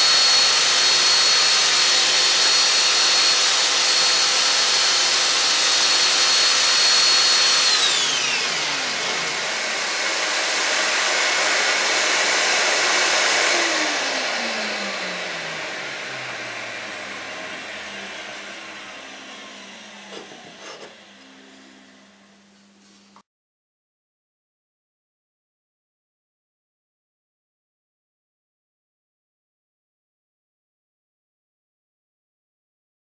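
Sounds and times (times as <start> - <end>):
sander motor whine: 0.0 - 22.4
airflow noise with hum: 14.0 - 23.0.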